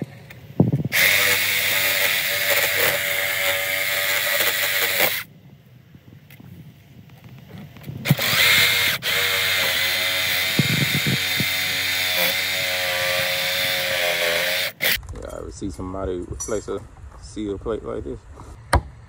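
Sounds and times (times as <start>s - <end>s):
reciprocating saw cutting wood: 0.9s - 5.3s, 8.0s - 15.0s.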